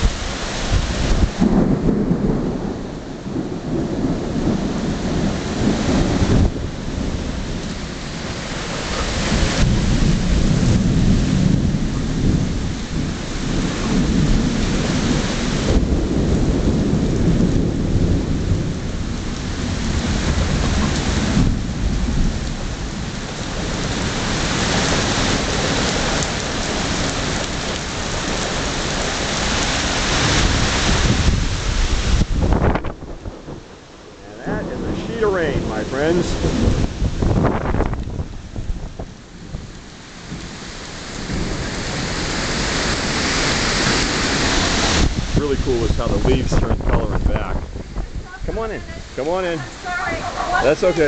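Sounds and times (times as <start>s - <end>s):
deep thunder rumble: 0.0s - 51.0s
heavy rain on pavement: 0.0s - 51.0s.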